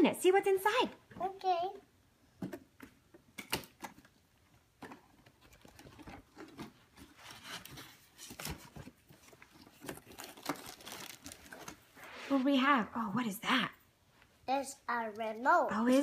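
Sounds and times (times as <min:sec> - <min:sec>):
soft rustling and handling: 0:04.8 - 0:13.1.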